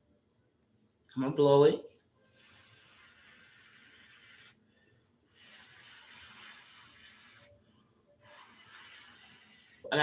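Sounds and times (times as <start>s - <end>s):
person blowing breathily: 2.3s - 4.7s, 5.3s - 7.5s, 8.2s - 9.9s.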